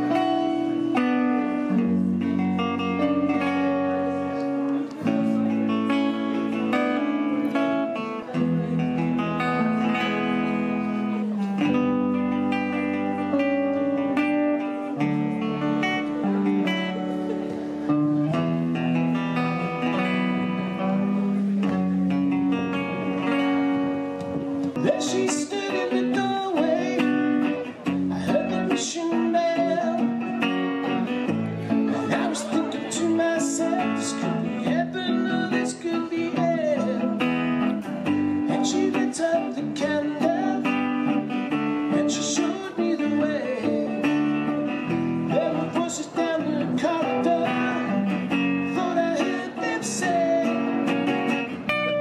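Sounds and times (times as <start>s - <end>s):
electric bass guitar: 0.0s - 52.0s
electric guitar: 0.0s - 52.0s
strummed acoustic guitar: 0.0s - 52.0s.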